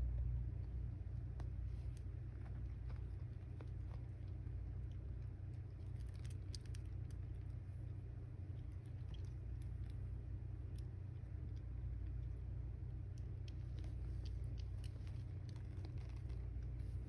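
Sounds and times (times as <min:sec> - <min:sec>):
kittens suckling clicks: 0:01.9 - 0:17.0
cat purring: 0:13.2 - 0:17.0.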